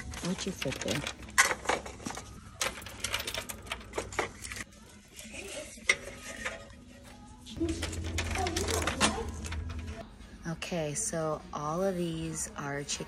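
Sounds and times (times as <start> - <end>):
ornaments clattering into plastic cart: 0.0 - 4.6.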